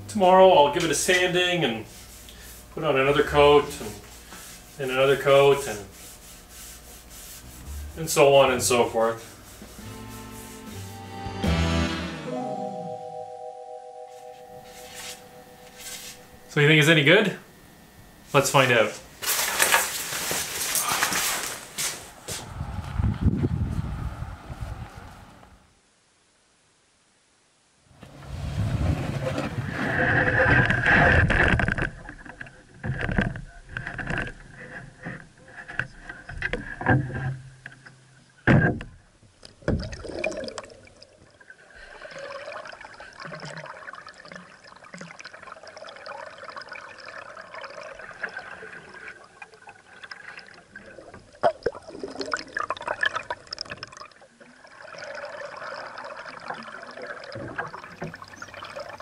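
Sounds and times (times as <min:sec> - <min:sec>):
water dripping and swirling: 0:39.4 - 0:59.0.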